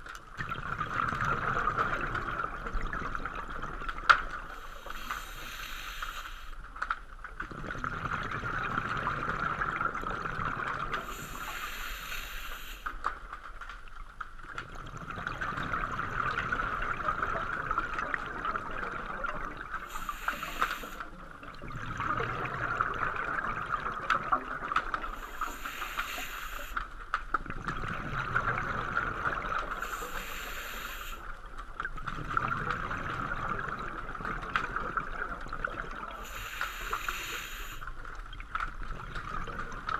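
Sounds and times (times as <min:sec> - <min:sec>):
exhaled air bubbling: 0:00.0 - 0:39.9
regulator inhale hiss: 0:04.5 - 0:06.6, 0:11.0 - 0:13.0, 0:19.8 - 0:21.2, 0:25.1 - 0:26.9, 0:29.7 - 0:31.3, 0:36.2 - 0:37.9.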